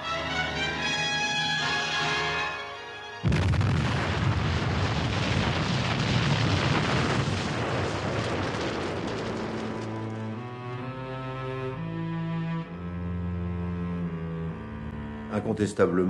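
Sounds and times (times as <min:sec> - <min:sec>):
music: 0:00.0 - 0:03.3, 0:09.7 - 0:16.0
explosion: 0:03.2 - 0:10.4
rushing roar of debris: 0:03.2 - 0:11.0.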